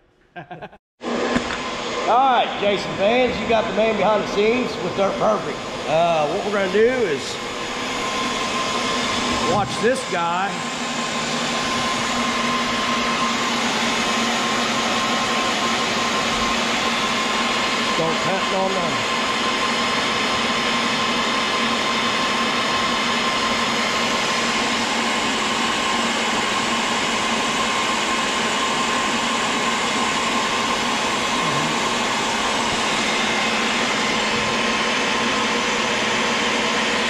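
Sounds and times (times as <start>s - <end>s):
drill motor whine: 1.0s - 37.0s.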